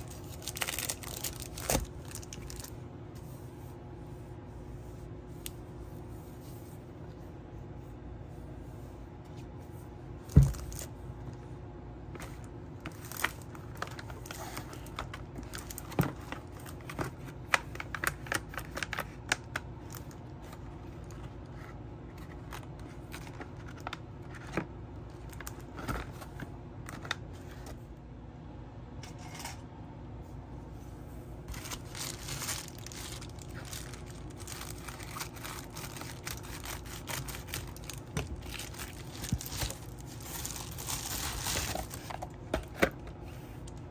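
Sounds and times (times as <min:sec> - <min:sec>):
plastic mailer crinkling: 0:00.0 - 0:02.8, 0:12.4 - 0:27.3, 0:31.5 - 0:43.8.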